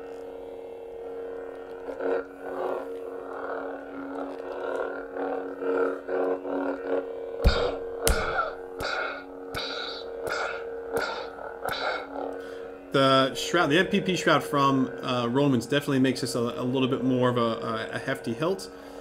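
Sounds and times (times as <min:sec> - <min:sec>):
lightsaber electric hum: 0:00.0 - 0:18.9
lightsaber clash effects: 0:07.5 - 0:12.4.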